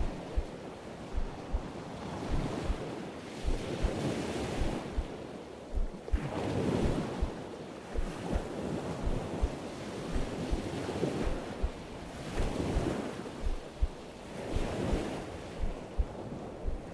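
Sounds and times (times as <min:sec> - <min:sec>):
heartbeat thumping: 0:00.0 - 0:14.1, 0:14.8 - 0:16.9
surf washing on a beach: 0:00.0 - 0:16.9.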